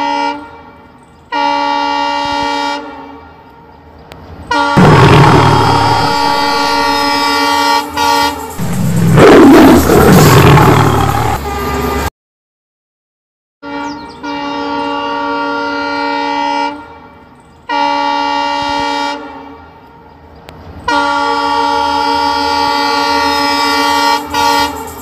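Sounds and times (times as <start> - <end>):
locomotive air horn blasts: 0.0 - 3.4, 4.5 - 9.1, 10.9 - 12.1, 13.6 - 19.8, 20.9 - 25.0
low rumble: 4.8 - 7.1, 8.5 - 11.4.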